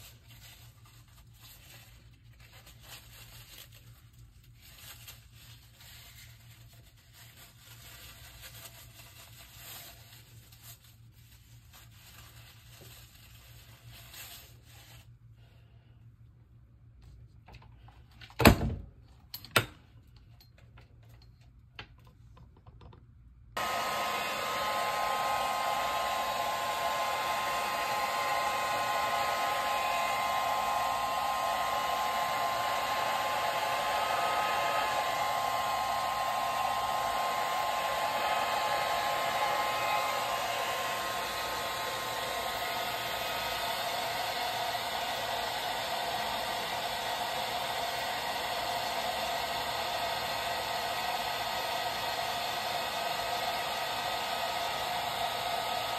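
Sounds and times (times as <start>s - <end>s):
hair dryer blowing: 0.0s - 0.8s, 23.6s - 55.9s.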